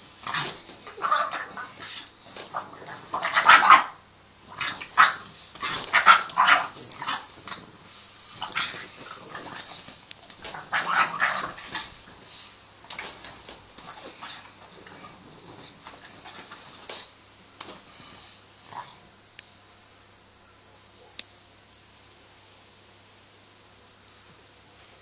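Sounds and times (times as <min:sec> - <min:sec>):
puppy play barks and growls: 0:00.0 - 0:19.1.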